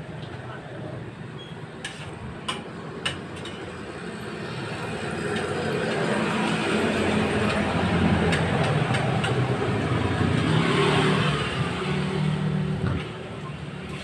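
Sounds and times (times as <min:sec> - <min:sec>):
vehicle engine passing by: 0:05.6 - 0:13.2.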